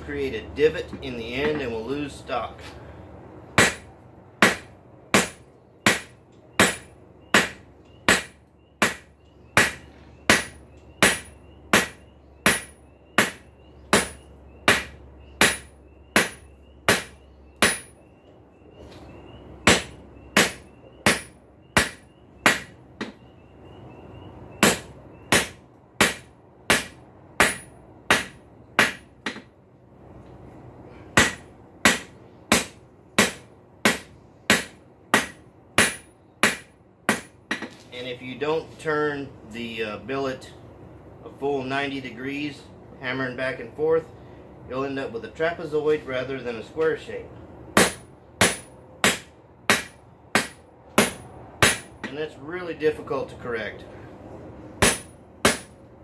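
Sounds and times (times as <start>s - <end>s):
hammer striking steel on anvil: 3.6s - 18.0s, 19.6s - 23.2s, 24.6s - 29.5s, 31.2s - 37.7s, 47.8s - 52.2s, 54.8s - 55.8s.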